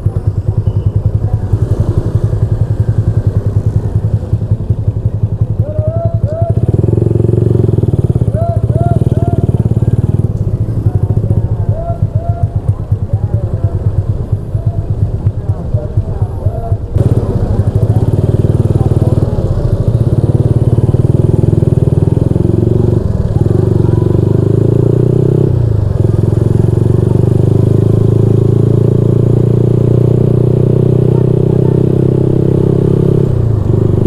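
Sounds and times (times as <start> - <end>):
motorcycle engine pulling away: 6.5 - 11.5, 17.0 - 34.0.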